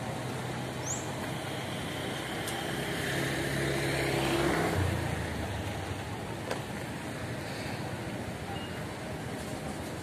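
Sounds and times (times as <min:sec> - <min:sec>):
vehicle engine running close by: 0:00.0 - 0:08.2
traffic noise: 0:00.0 - 0:10.0.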